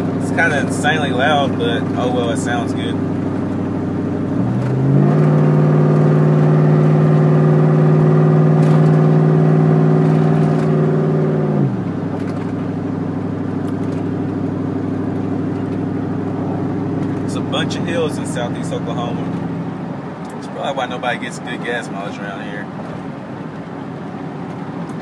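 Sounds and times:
truck engine through loud exhaust: 0:00.0 - 0:25.0.

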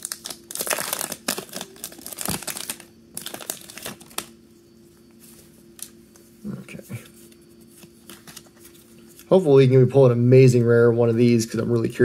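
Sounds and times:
foil wrapper crinkling: 0:00.0 - 0:04.3.

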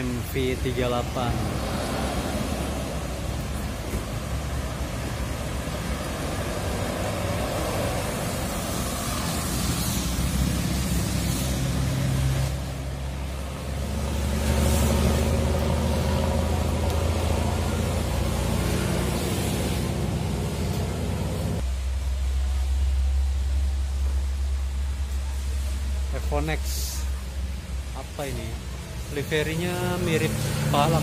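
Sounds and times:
tyre hiss on wet road: 0:00.0 - 0:21.6
bus diesel engine accelerating: 0:00.0 - 0:21.7, 0:27.0 - 0:31.0
heavy low engine rumble: 0:00.0 - 0:31.0.

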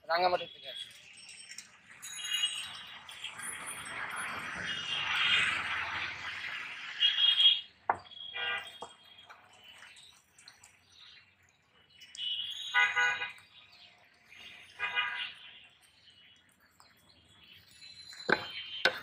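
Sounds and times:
vehicle horn honks: 0:08.4 - 0:08.8, 0:12.3 - 0:13.3, 0:14.8 - 0:15.4.

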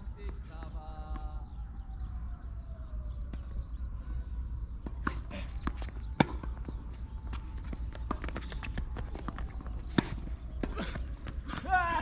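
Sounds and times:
tennis ball bounces: 0:04.8 - 0:11.6
footsteps on court: 0:04.8 - 0:12.0.

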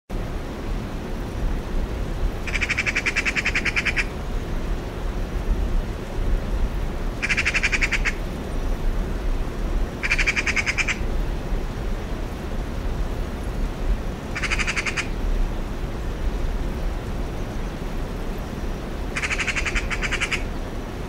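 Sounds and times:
magpie chattering: 0:02.5 - 0:04.1, 0:07.2 - 0:08.2, 0:10.0 - 0:11.0, 0:14.4 - 0:15.1, 0:19.2 - 0:20.4.

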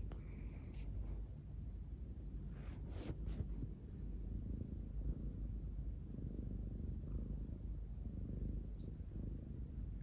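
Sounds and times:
cat purring: 0:00.0 - 0:10.0.

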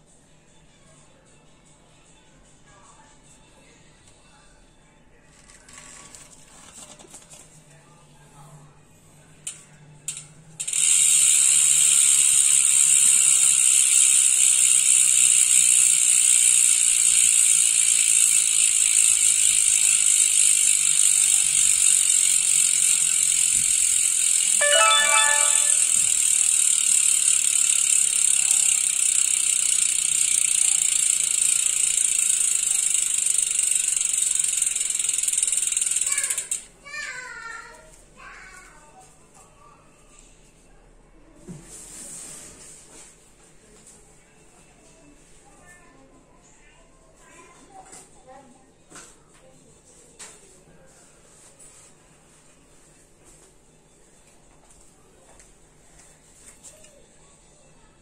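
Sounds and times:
bicycle freehub ratcheting whirr: 0:09.4 - 0:36.7.

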